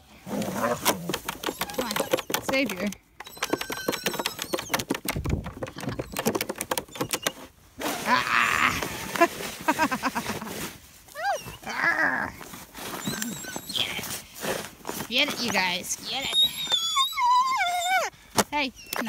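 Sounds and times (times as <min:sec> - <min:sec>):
puppy whining: 0:01.4 - 0:05.1, 0:05.7 - 0:08.8, 0:11.1 - 0:14.2, 0:15.4 - 0:19.0.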